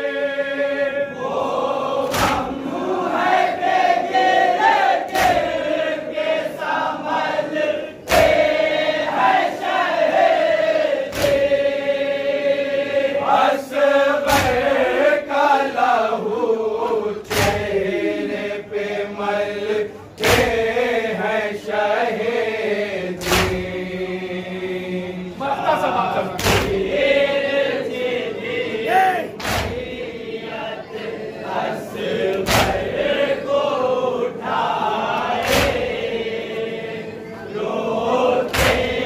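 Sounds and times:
men chanting in unison: 0.0s - 39.0s
collective chest-beating slaps: 2.0s - 3.4s, 4.1s - 5.8s, 8.0s - 9.5s, 11.0s - 11.8s, 14.2s - 15.1s, 17.2s - 18.4s, 20.2s - 20.9s, 23.1s - 23.9s, 26.3s - 27.1s, 29.3s - 30.0s, 32.2s - 33.2s, 35.1s - 36.1s, 38.4s - 39.0s.

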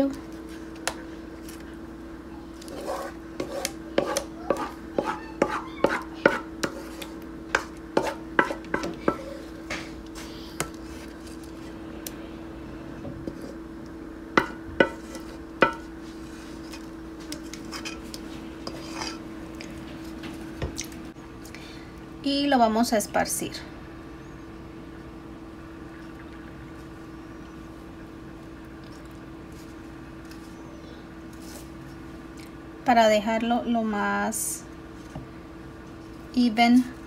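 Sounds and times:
wooden spoon scraping a pot: 2.6s - 11.8s, 14.4s - 20.2s.

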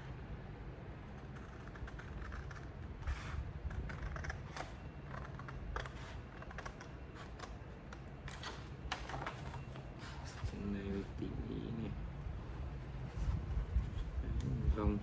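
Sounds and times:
scissors snipping paper: 1.2s - 8.6s.

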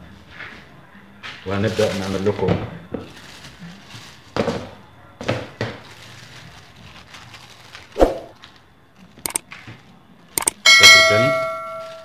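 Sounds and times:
plastic bag rustling: 1.5s - 9.2s, 11.8s - 12.0s
sharp clicks: 9.2s - 9.4s, 10.4s - 10.6s.

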